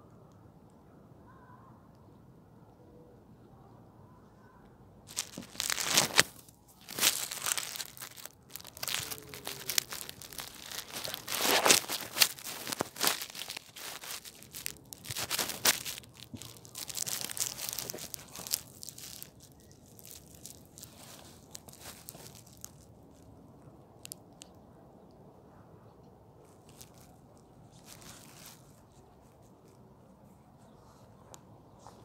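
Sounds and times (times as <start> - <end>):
phone handling rustling in grass: 5.1 - 23.3, 26.6 - 28.9.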